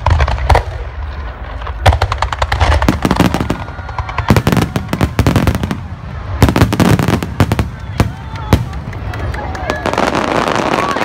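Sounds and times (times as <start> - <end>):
fireworks crackling bursts: 0.0 - 11.0.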